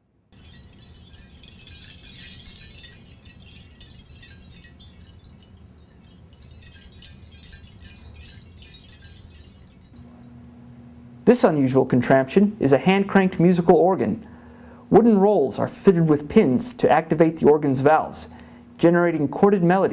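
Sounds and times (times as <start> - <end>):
metal cones jingling: 0.3 - 10.5.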